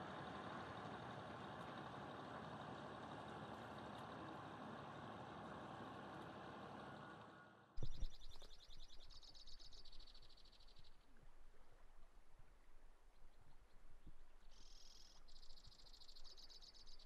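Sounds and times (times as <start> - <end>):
heavy machinery engine running: 0.0 - 8.1.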